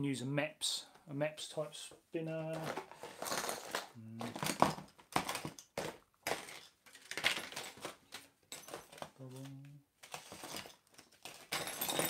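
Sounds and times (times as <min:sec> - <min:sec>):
small items knocking: 0:02.4 - 0:12.0
packaging crinkling: 0:02.5 - 0:09.1
hands rummaging through tackle: 0:02.5 - 0:09.2
person humming: 0:04.0 - 0:04.4, 0:09.2 - 0:09.8.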